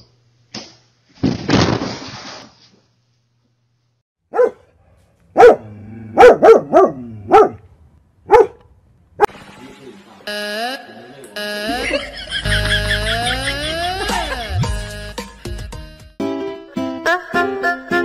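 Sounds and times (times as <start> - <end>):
dog barking: 4.3 - 7.6, 8.3 - 8.6.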